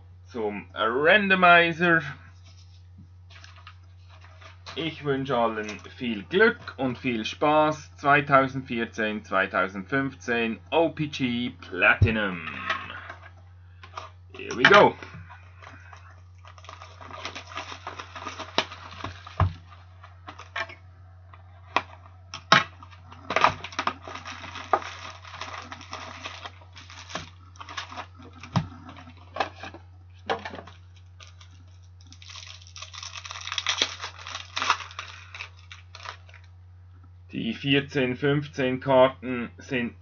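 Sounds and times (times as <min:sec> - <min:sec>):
cardboard and plastic crinkling: 0:02.3 - 0:05.0, 0:13.8 - 0:36.5.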